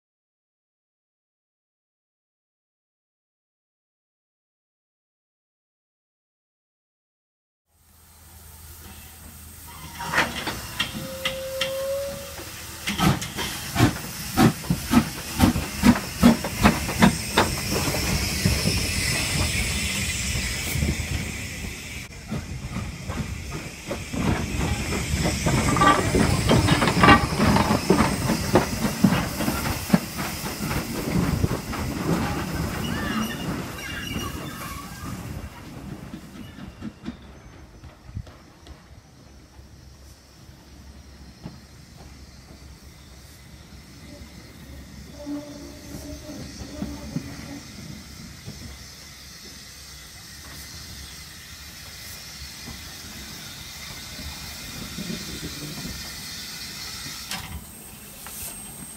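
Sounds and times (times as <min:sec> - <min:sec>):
steam hissing: 0:07.8 - 0:58.9
steam locomotive exhaust chuffs: 0:07.9 - 0:58.9
steam locomotive whistle: 0:08.8 - 0:12.8, 0:44.0 - 0:47.8
wheels clattering over rail joints: 0:09.7 - 0:11.8, 0:12.4 - 0:19.6, 0:22.1 - 0:38.8.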